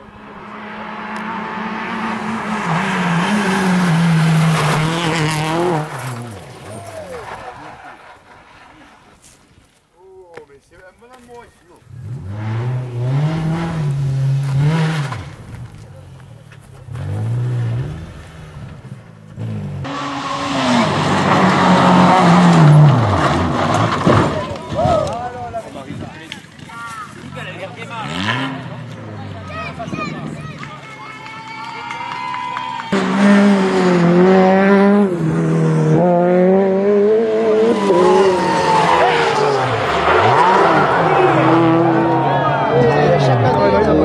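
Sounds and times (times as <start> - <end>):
rally car engine revving: 0.0 - 8.4, 11.9 - 25.2, 27.2 - 30.7, 32.9 - 44.0
tyres sliding on gravel: 3.1 - 10.0, 14.0 - 32.0, 37.7 - 44.0.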